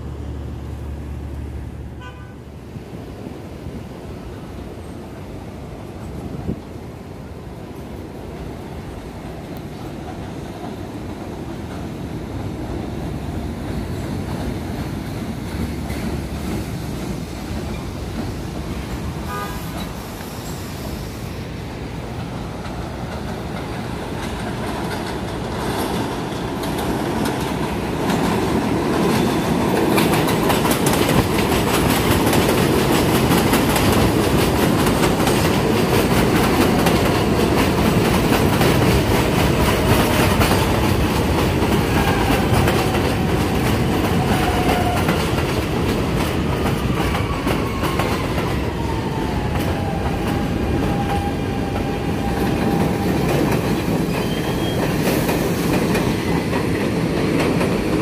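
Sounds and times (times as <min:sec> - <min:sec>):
train passing close: 0:00.0 - 0:58.0
train running on steel track: 0:00.0 - 0:58.0
train horn toot: 0:01.9 - 0:02.5, 0:19.2 - 0:19.9, 0:41.9 - 0:42.7, 0:44.1 - 0:45.2.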